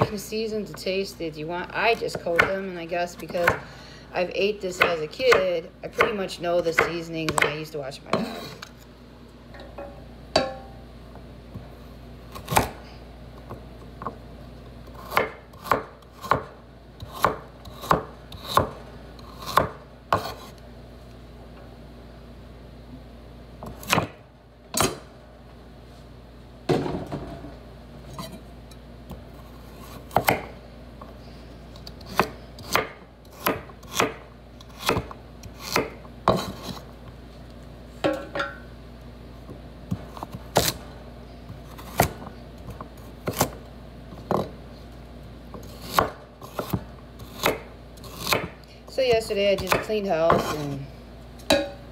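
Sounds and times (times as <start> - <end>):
knife chopping on wooden board: 15.0 - 18.8, 19.4 - 20.5, 29.9 - 30.6, 32.1 - 36.8, 45.6 - 48.6, 49.6 - 50.6.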